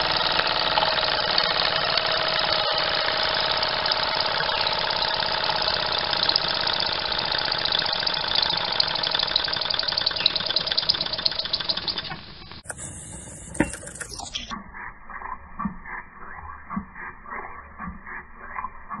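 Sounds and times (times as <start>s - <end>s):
model steam engine chuffing: 0.0s - 14.5s.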